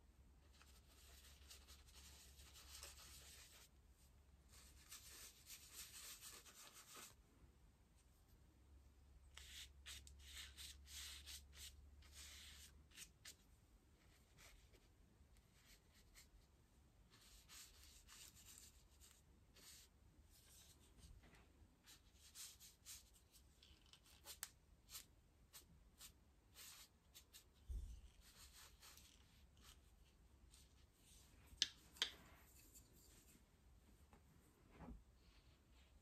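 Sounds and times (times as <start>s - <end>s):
paintbrush brushing on paper: 0.5s - 3.8s, 4.5s - 7.2s, 9.4s - 16.5s, 17.1s - 21.2s, 21.8s - 33.4s.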